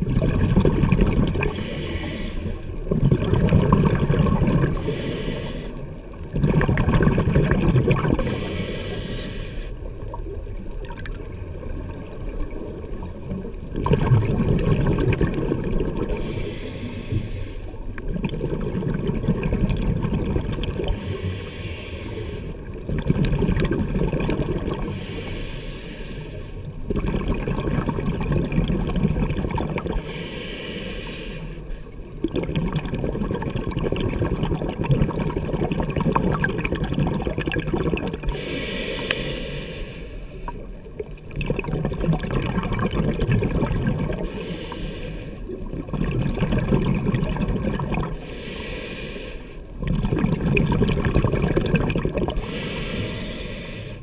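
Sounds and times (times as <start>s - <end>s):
exhaled bubbles rushing: 0.0s - 1.8s, 2.6s - 5.1s, 5.8s - 8.5s, 9.8s - 16.3s, 17.8s - 21.2s, 22.6s - 25.0s, 26.8s - 30.0s, 31.9s - 38.6s, 40.4s - 44.4s, 45.4s - 48.3s, 49.6s - 53.2s
regulator inhale hiss: 1.4s - 2.8s, 4.7s - 6.1s, 8.2s - 9.9s, 16.0s - 17.9s, 20.8s - 22.7s, 24.8s - 26.8s, 29.9s - 32.1s, 38.2s - 40.8s, 44.1s - 45.6s, 48.1s - 49.8s, 52.4s - 54.0s.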